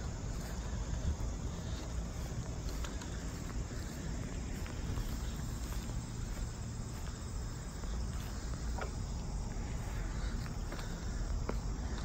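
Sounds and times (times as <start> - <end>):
crickets chirping: 0.0 - 12.0
low outdoor rumble: 0.0 - 12.0.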